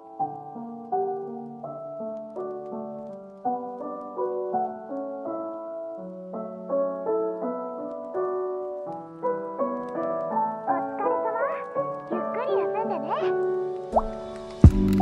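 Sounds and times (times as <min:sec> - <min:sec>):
calm piano melody: 0:00.0 - 0:15.0.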